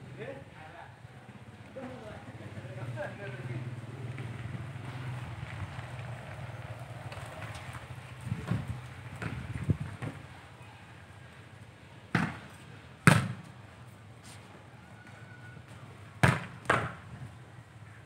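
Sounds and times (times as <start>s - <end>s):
football being kicked thuds: 12.1s - 12.5s, 13.1s - 13.5s, 16.2s - 17.0s.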